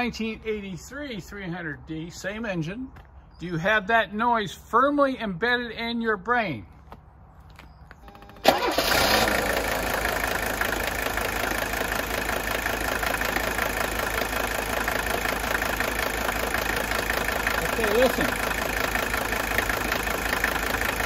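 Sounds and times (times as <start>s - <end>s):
diesel engine cranking: 8.0s - 21.0s
diesel engine idling with knock: 9.6s - 21.0s.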